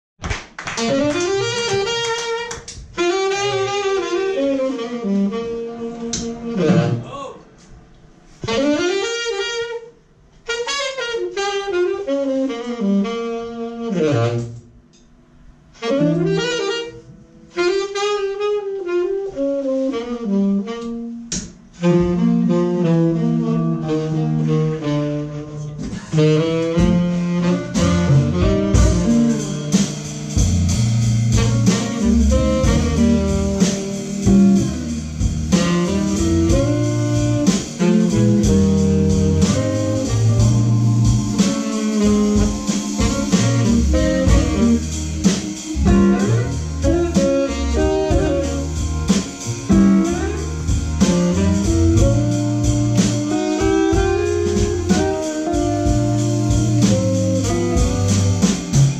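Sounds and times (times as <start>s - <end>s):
jazz blues band playing: 0.6s - 7.0s, 7.6s - 14.7s, 15.6s - 58.9s
cymbals: 25.6s - 58.9s.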